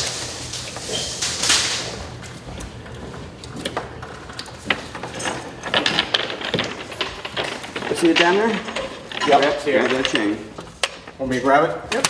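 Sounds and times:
metal chain clinking: 4.7 - 11.3.

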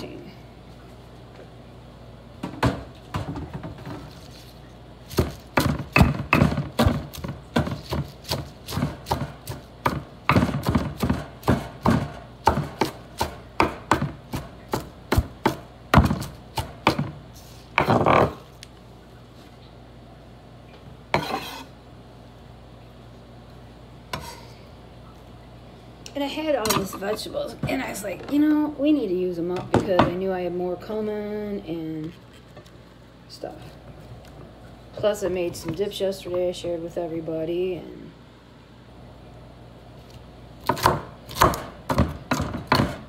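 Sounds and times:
knife chopping on wooden board: 5.1 - 17.2, 40.6 - 43.0
knife scraping board: 21.2 - 21.8, 24.1 - 24.5.

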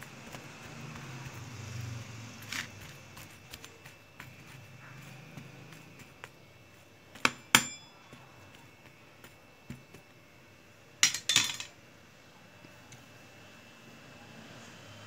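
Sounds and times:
metal spatula clinking on tray: 7.2 - 8.0, 11.0 - 11.7.

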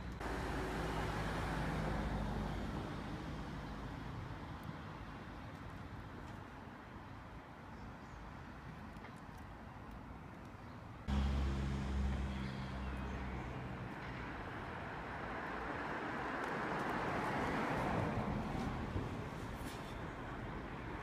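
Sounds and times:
vehicle engine hum: 0.0 - 5.1, 11.1 - 21.0
tyre and road noise: 0.0 - 7.3, 8.6 - 21.0.

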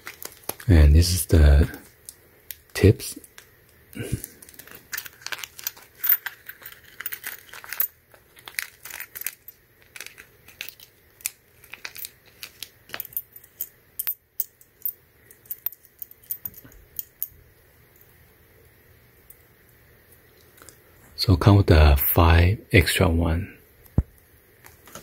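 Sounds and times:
plastic bag crinkling: 0.0 - 3.4, 4.1 - 13.0.

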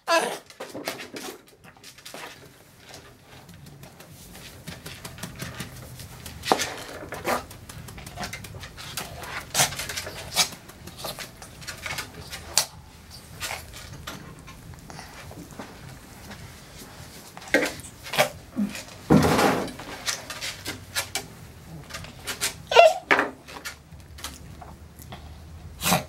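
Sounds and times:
sharp clicks and knocks: 2.9 - 16.4.

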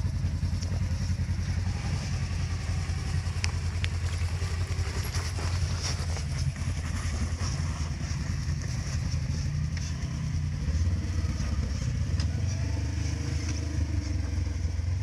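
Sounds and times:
utility vehicle engine droning: 0.0 - 15.0
rocks ticking: 2.8 - 12.4.

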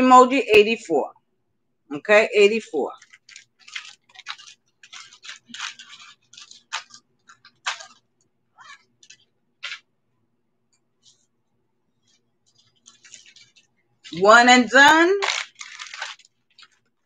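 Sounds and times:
jewelry rustling and clicking: 2.9 - 9.9, 10.6 - 14.3, 15.2 - 17.0.

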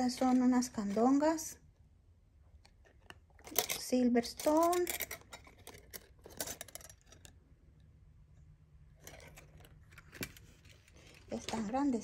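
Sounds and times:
earrings clicking and clinking: 2.7 - 7.5, 8.9 - 12.0.

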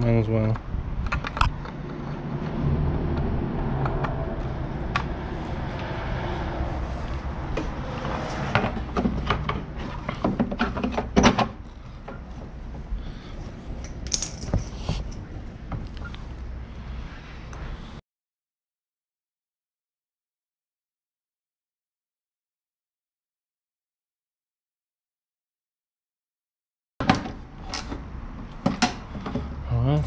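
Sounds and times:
low background rumble: 0.6 - 9.0.

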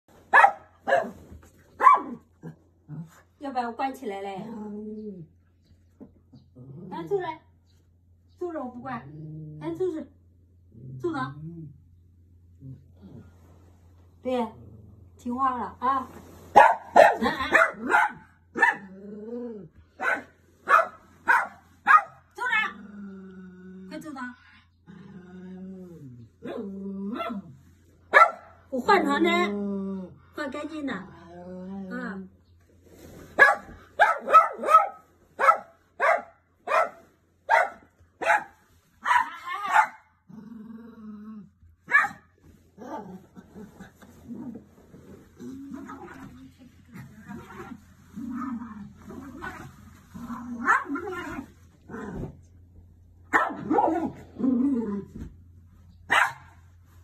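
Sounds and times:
small dog barking: 0.3 - 1.2, 1.8 - 2.3, 16.6 - 18.9, 20.0 - 22.3, 28.1 - 28.6, 33.4 - 40.1, 41.9 - 42.3, 50.6 - 51.3, 53.3 - 54.2, 56.1 - 56.6
dog growling: 6.3 - 7.2, 9.0 - 9.8, 10.6 - 11.9, 12.5 - 13.4, 14.4 - 15.3, 18.8 - 19.9, 22.6 - 27.6, 30.9 - 32.2, 39.5 - 41.7, 42.7 - 52.6, 53.6 - 55.2.

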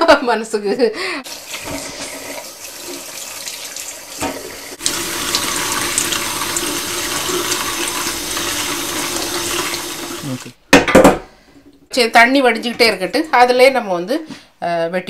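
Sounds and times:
tap water splashing in colander: 1.3 - 10.5.

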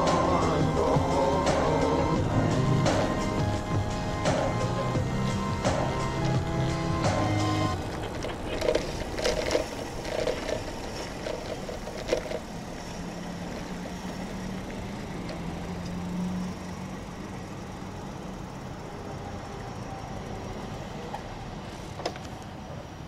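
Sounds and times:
road and wind noise: 0.0 - 23.0
bicycle clicks and rattles: 7.7 - 19.2, 21.0 - 22.6.

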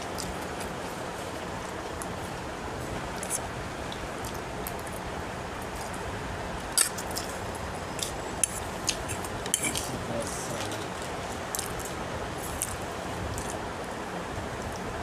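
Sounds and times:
steady background hiss: 0.0 - 15.0
fork scraping a plate: 8.4 - 9.9.

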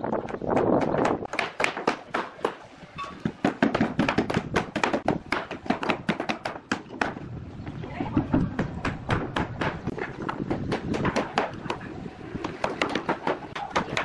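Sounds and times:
hammer knocking on wood: 3.2 - 7.2.

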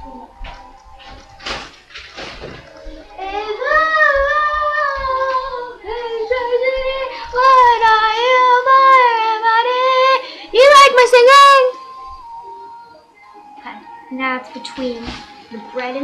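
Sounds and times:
girl singing long sliding notes: 2.9 - 16.0.

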